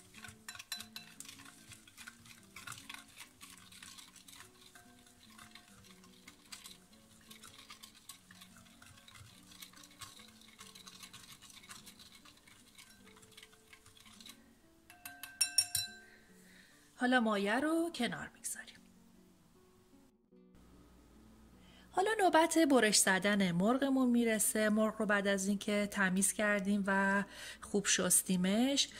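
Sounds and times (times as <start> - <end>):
spoon scraping glass bowl: 0.0 - 16.2
soft background music: 0.0 - 28.9.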